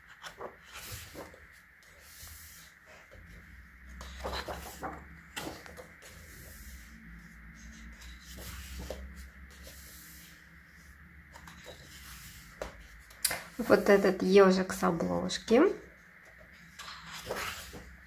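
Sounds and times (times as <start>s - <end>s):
paper pages turning: 0.0s - 7.0s, 7.6s - 10.4s, 11.3s - 14.1s, 16.6s - 18.0s.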